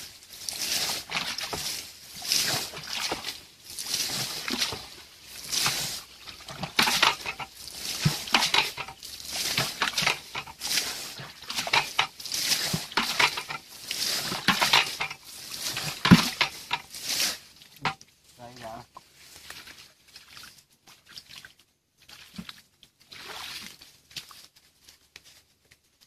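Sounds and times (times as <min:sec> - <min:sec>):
bucket scooping and splashing water: 0:00.0 - 0:18.0, 0:19.4 - 0:24.4
bucket knocking: 0:05.5 - 0:10.8, 0:11.4 - 0:13.6, 0:14.3 - 0:16.9.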